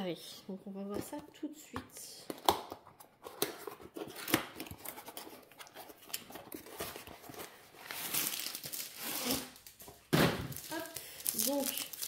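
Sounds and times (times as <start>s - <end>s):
packaging rustling: 3.2s - 12.0s.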